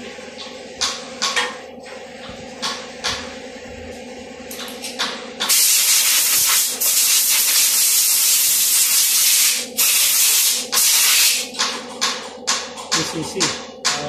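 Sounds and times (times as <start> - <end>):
compressed-air blow gun blasting: 5.4 - 11.4.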